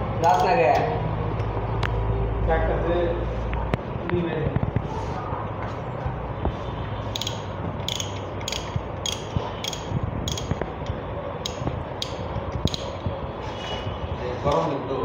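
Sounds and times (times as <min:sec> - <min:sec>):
ratchet wrench clicking: 0:00.2 - 0:00.8, 0:07.1 - 0:13.0
steady low hum: 0:00.9 - 0:15.0.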